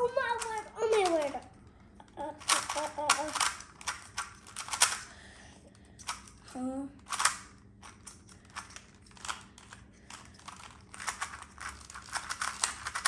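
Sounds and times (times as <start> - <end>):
puzzle cube layers clicking: 2.4 - 5.0.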